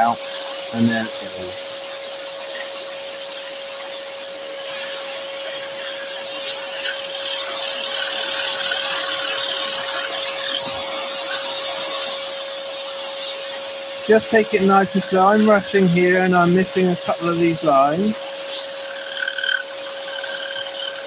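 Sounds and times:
blade sawing through wood: 0:00.0 - 0:21.0
scroll saw humming: 0:00.0 - 0:21.0.

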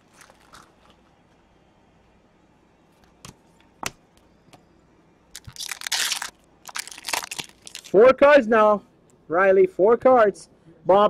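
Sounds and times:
card pack wrapper crinkling: 0:00.0 - 0:01.0, 0:05.3 - 0:08.0.

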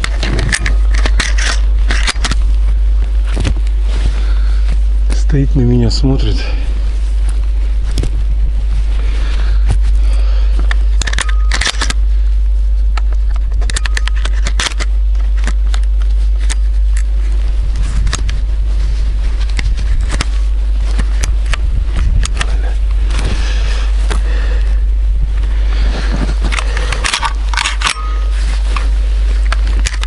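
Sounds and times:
handling noise clicks and scrapes: 0:00.0 - 0:04.2, 0:09.6 - 0:24.2, 0:25.4 - 0:30.0.

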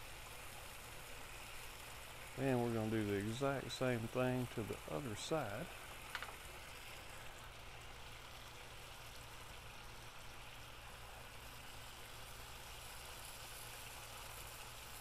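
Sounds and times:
low steady hum: 0:00.0 - 0:15.0
meat sizzling on a grill: 0:00.0 - 0:15.0.

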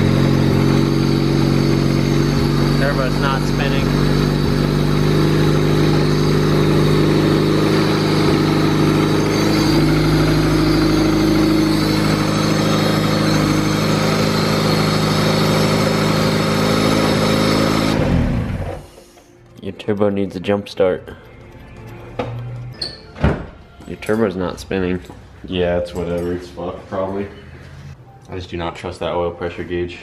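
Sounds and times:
car engine idling: 0:00.0 - 0:18.9.

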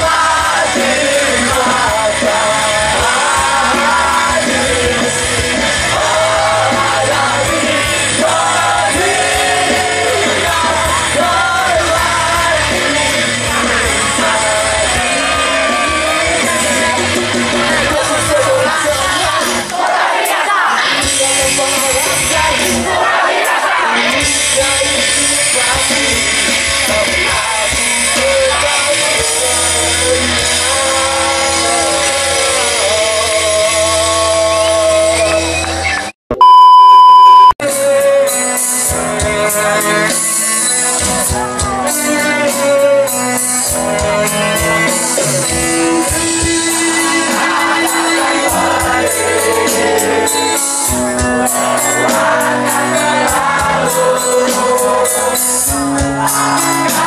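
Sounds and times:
live punk rock band with singer: 0:00.0 - 0:57.0
test-tone beep: 0:36.3 - 0:37.6.

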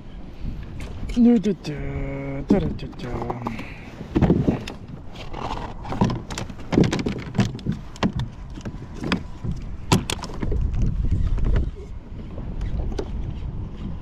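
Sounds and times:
fishing gear knocking and rattling: 0:02.4 - 0:11.7.

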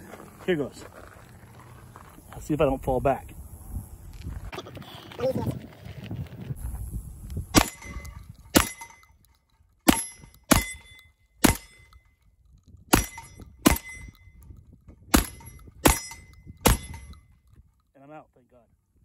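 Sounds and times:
shotgun shots: 0:07.6 - 0:09.0, 0:09.8 - 0:12.0, 0:12.9 - 0:14.1, 0:15.1 - 0:17.2
steel targets clanging: 0:07.6 - 0:09.2, 0:09.8 - 0:12.1, 0:12.9 - 0:14.4, 0:15.1 - 0:17.3.

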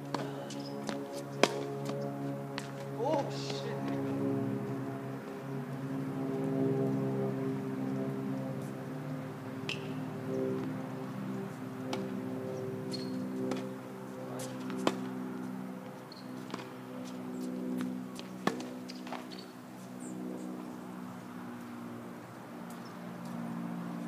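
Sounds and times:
tennis racket hitting ball: 0:00.1 - 0:01.7.

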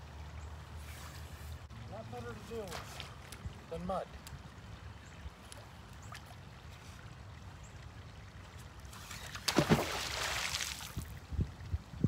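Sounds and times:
magnet splashing into water: 0:09.0 - 0:11.1.

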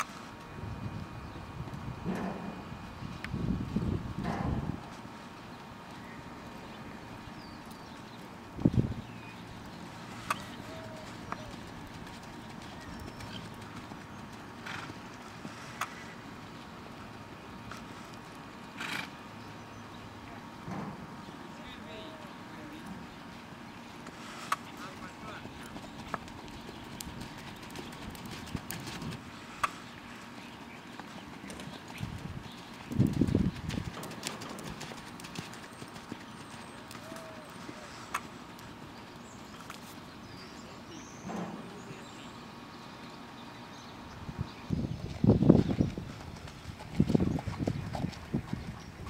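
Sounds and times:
muffled hoofbeats on sand: 0:10.0 - 0:16.0, 0:24.7 - 0:29.3, 0:30.2 - 0:38.3, 0:44.9 - 0:49.0
sharp hoof clicks: 0:10.1 - 0:16.0, 0:24.5 - 0:37.3, 0:45.1 - 0:48.9
sharp clicks: 0:10.2 - 0:10.6.

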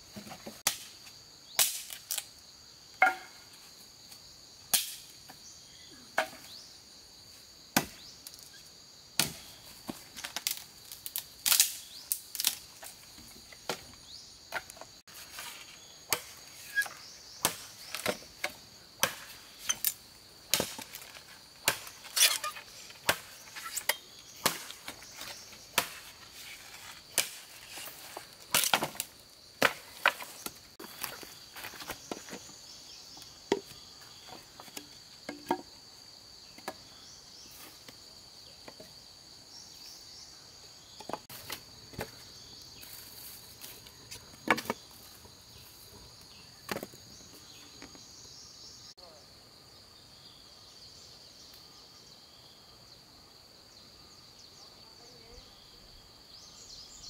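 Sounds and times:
high insect trill: 0:00.0 - 0:57.0
blade chopping bamboo: 0:20.5 - 0:26.1.

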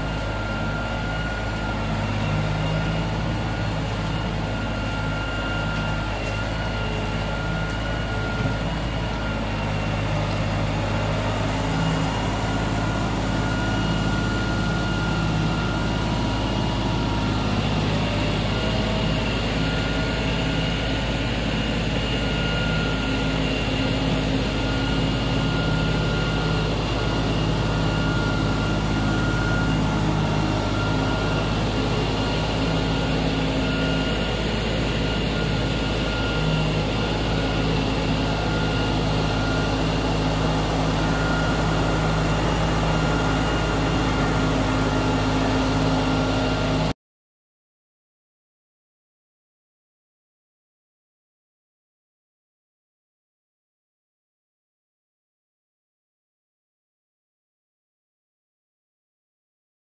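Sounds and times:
tractor diesel engine running: 0:00.0 - 0:47.0.

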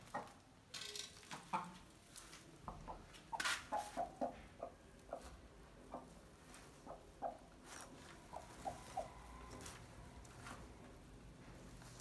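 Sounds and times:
hen clucking softly: 0:03.7 - 0:07.5
straw rustling: 0:07.6 - 0:12.0.

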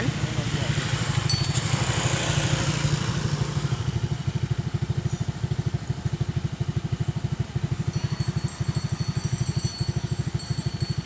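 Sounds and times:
excavator diesel engine chugging: 0:00.0 - 0:11.0.

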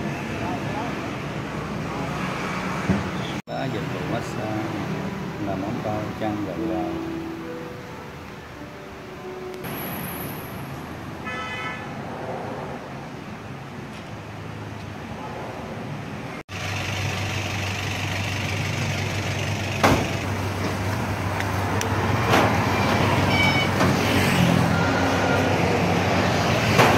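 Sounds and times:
street traffic: 0:00.0 - 0:26.9
horn toot: 0:11.2 - 0:12.0
engine hum: 0:12.1 - 0:26.9
signboards clanking into metal truck bed: 0:19.8 - 0:20.9, 0:26.7 - 0:26.9.

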